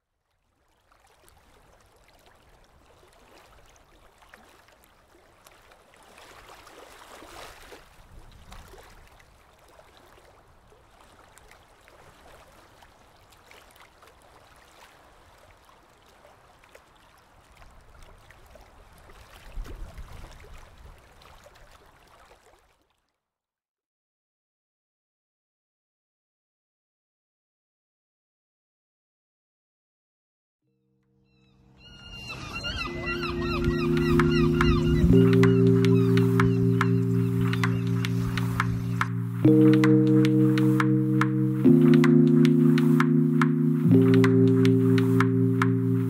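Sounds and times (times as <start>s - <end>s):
sea water washing and lapping: 0.7s - 22.9s.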